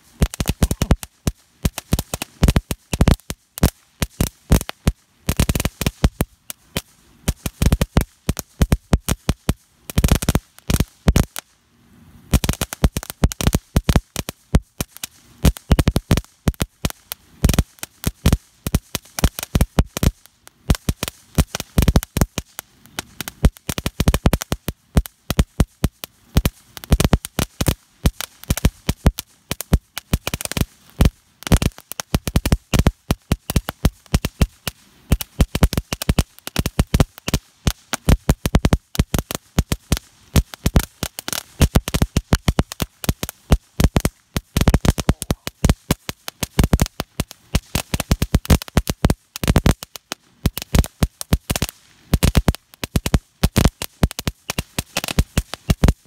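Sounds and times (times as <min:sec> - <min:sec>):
firework popping and crackling: 0:00.0 - 0:56.0.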